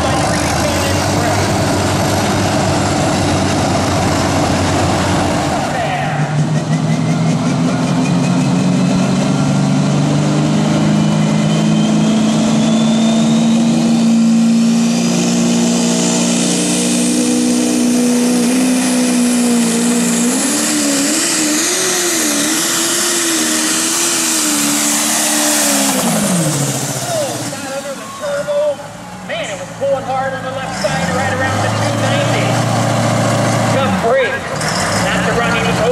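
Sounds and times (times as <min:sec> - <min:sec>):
high turbo whine: 0:00.0 - 0:35.9
tractor diesel engine at full power: 0:00.0 - 0:35.9.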